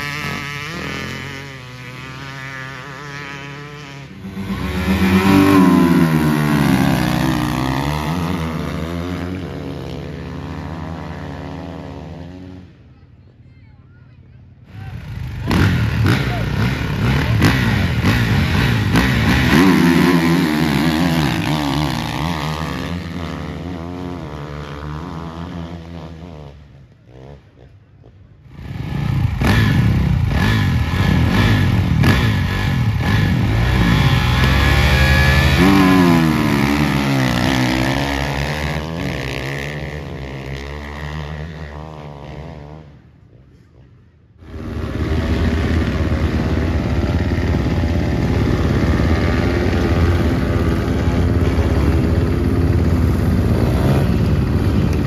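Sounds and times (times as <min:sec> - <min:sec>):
dirt bike engines revving: 0:00.0 - 0:13.5, 0:14.2 - 0:55.0
engine running steadily: 0:26.6 - 0:55.0.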